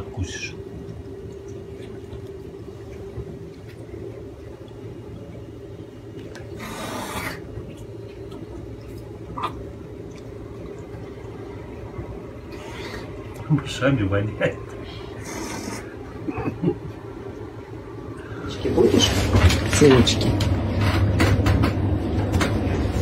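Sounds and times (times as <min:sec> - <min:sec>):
steady hum: 0:00.0 - 0:23.0
wild cat purring: 0:06.6 - 0:07.4.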